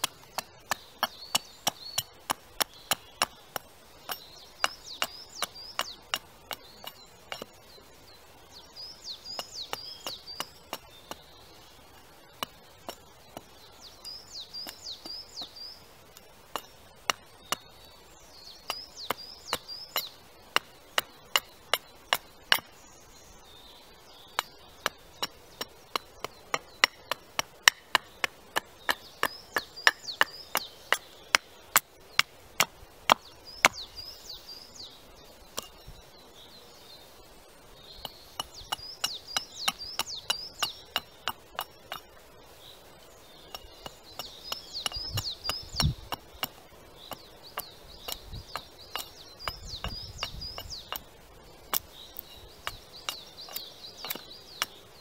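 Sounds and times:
axe chopping wood: 0:00.0 - 0:07.6, 0:24.4 - 0:33.9.

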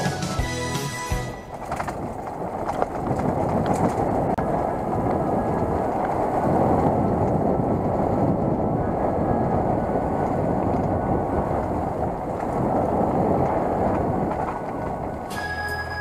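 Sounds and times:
rumble over cobbles: 0:01.3 - 0:15.3
wind buffeting microphone: 0:01.3 - 0:16.0.

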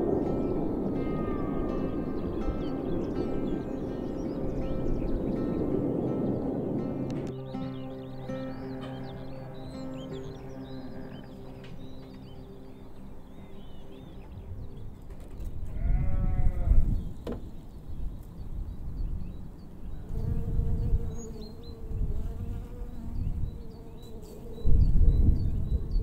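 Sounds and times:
small birds chirping: 0:00.0 - 0:26.0
sheep bleating: 0:15.7 - 0:16.9.

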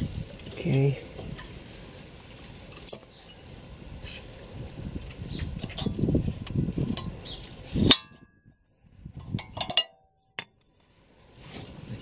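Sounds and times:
metal clank with ring: 0:07.9 - 0:08.4, 0:09.4 - 0:10.6
brake pads clinking on metal: 0:09.2 - 0:10.8.

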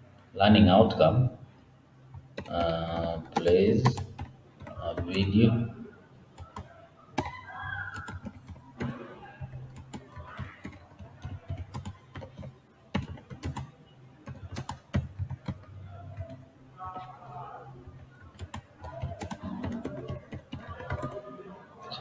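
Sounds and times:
typing on computer keyboard: 0:02.2 - 0:05.3, 0:06.4 - 0:16.4, 0:18.2 - 0:21.4.

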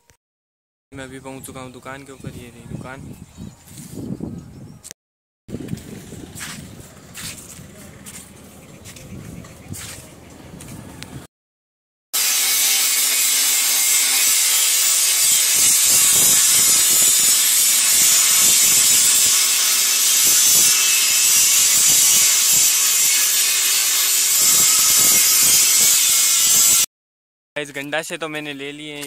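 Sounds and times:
angle grinder grinding steel: 0:12.2 - 0:26.9.

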